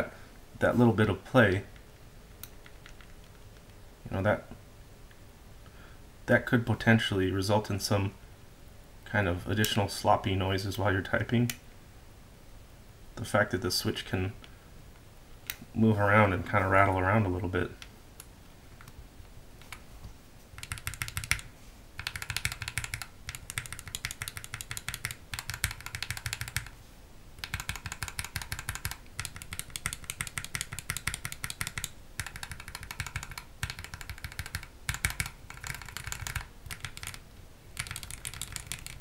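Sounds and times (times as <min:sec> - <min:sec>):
keyboard keycaps rattling: 0:20.5 - 0:26.8, 0:27.4 - 0:37.2, 0:37.8 - 0:39.0.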